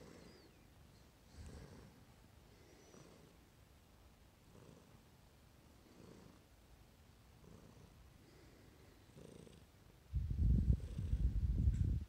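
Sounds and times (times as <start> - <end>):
cat purring: 0.0 - 0.6, 1.3 - 3.4, 4.4 - 5.0, 5.8 - 6.5, 7.3 - 11.8.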